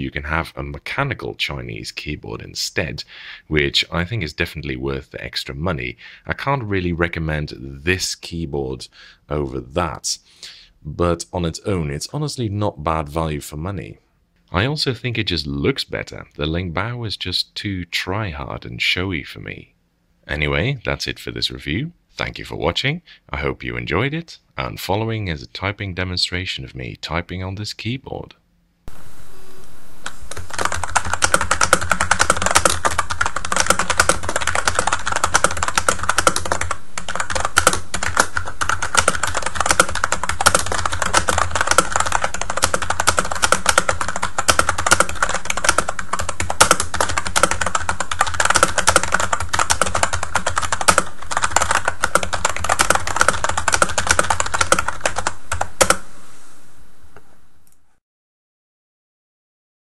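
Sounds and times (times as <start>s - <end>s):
fast typing on keyboard: 30.3s - 56.0s.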